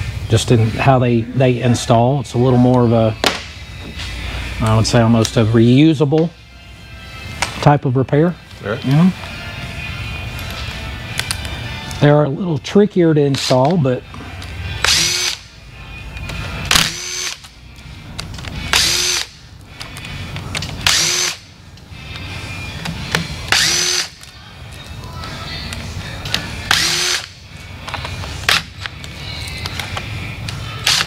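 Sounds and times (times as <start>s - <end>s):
cordless driver spinning up: 14.8s - 15.4s, 16.7s - 17.5s, 18.7s - 19.3s, 20.8s - 21.4s, 23.5s - 24.2s, 26.7s - 27.3s.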